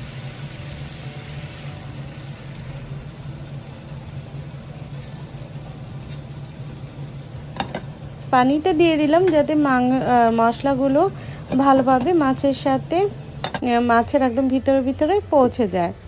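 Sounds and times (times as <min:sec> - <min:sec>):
fish sizzling in a frying pan: 0:00.0 - 0:07.2.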